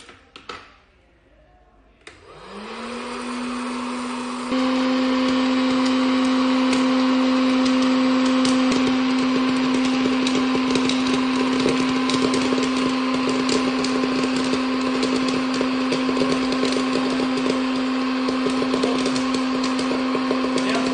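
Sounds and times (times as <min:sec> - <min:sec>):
popcorn maker motor and fan hum: 0:02.0 - 0:20.9
corn popping: 0:04.5 - 0:20.9.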